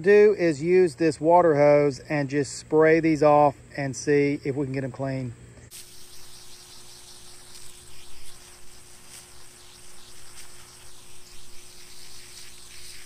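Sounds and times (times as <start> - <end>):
hose spray hitting foam filter: 5.7 - 13.0.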